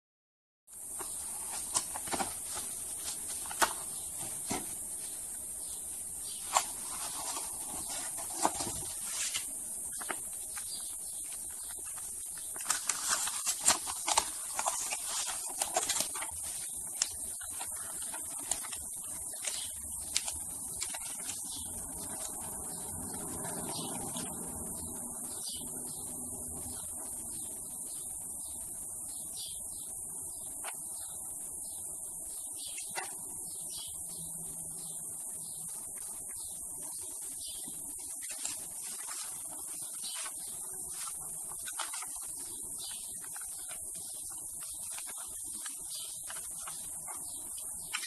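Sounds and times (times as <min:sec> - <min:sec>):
steady high hiss: 0:00.7 - 0:48.0
paper packaging rustling: 0:00.9 - 0:24.4, 0:38.0 - 0:48.0.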